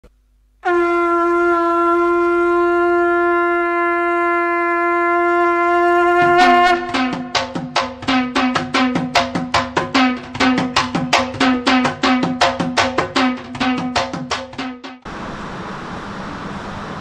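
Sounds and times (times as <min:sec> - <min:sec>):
long horn-like note: 0:00.6 - 0:09.2, 0:09.9 - 0:12.4
fast drum strokes: 0:06.2 - 0:15.1.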